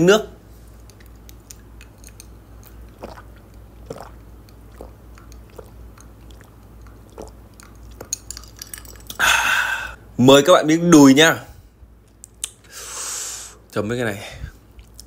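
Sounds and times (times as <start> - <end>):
soft gulps swallowing: 2.6 - 8.1.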